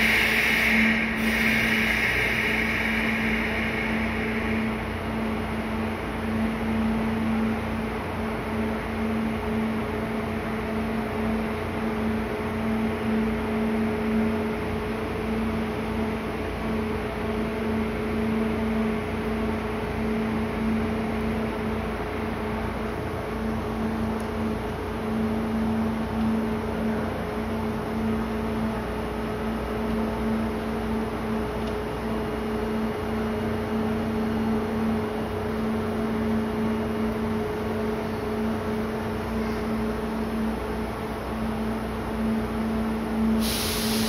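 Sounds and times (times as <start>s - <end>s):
hiss: 0.0s - 5.4s, 43.4s - 44.0s
train electrical hum: 0.0s - 44.0s.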